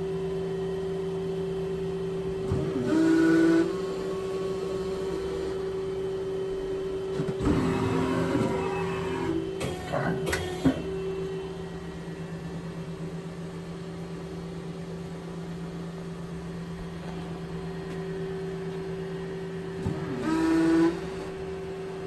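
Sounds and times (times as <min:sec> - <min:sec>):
lathe running with steady hum: 0:00.0 - 0:22.0
rising machine whine: 0:07.4 - 0:14.3.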